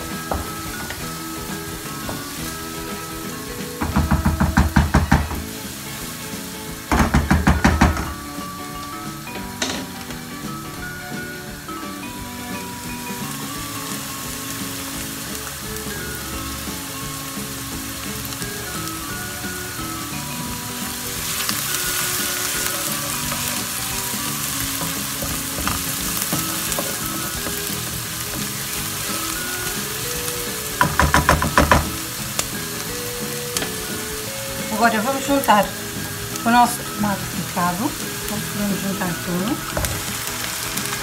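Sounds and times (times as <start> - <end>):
onion and garlic sizzling in a pan: 0.0 - 41.0
wooden spoon knocks: 6.9 - 8.2, 24.8 - 27.6, 30.8 - 32.0.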